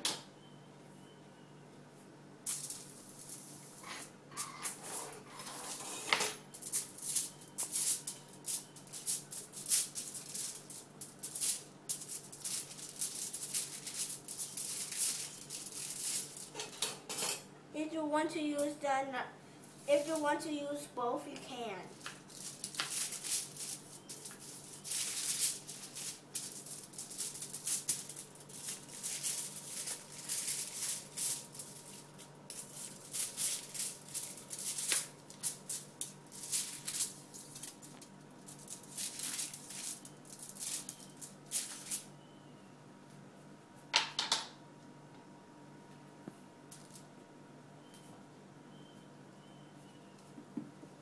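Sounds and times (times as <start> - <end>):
foil and plastic crinkling: 6.6 - 16.6, 21.9 - 42.1.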